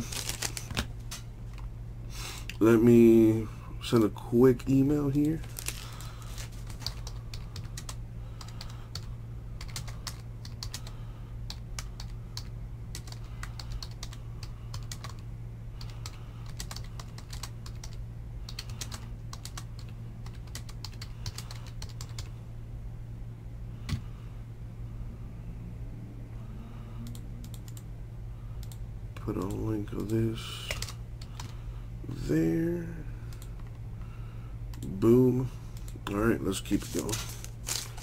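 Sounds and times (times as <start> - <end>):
steady low hum: 0.0 - 38.0
computer keyboard typing: 6.6 - 10.9, 11.5 - 15.2, 15.8 - 22.3, 29.4 - 31.5.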